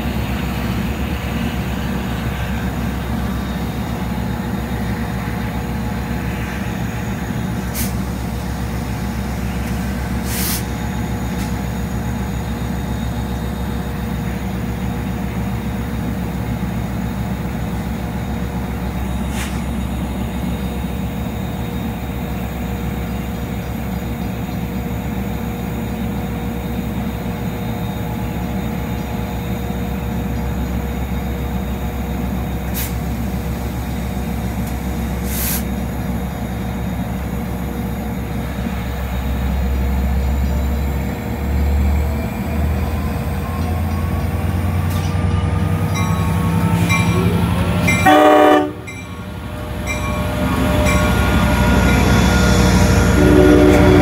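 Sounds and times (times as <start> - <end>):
locomotive idling hum: 0.0 - 54.0
rising whine of train: 0.0 - 54.0
train horn blast: 47.3 - 49.0, 50.2 - 54.0.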